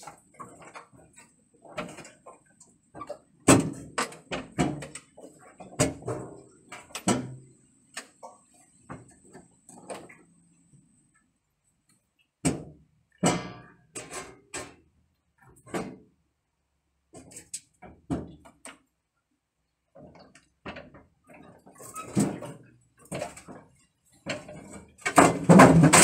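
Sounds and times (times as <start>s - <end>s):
metal clunks and rattles: 20.0s - 26.0s.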